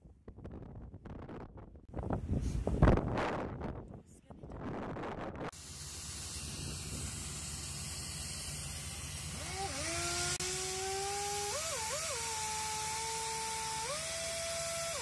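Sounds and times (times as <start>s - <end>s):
wind on microphone: 0.0s - 5.5s
drilling rig motor whine: 5.5s - 15.0s.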